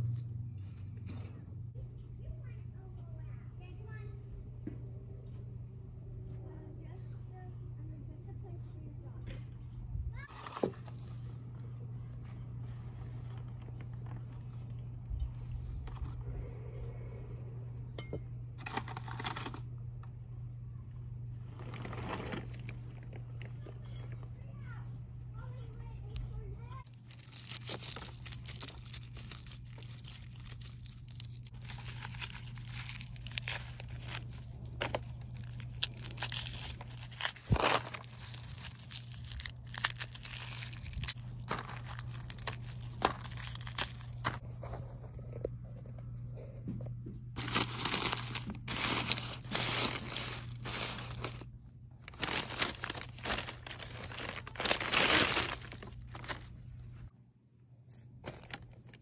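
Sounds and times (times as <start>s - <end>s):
garlic skins crackling: 26.8s - 44.4s, 47.4s - 56.6s
paper bag crinkling: 26.8s - 44.4s, 47.4s - 56.6s.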